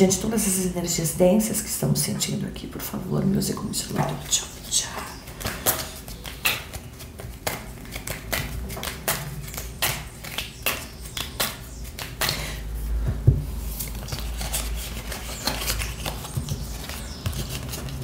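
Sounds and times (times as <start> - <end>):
cards being shuffled: 5.0 - 12.5, 13.6 - 18.0.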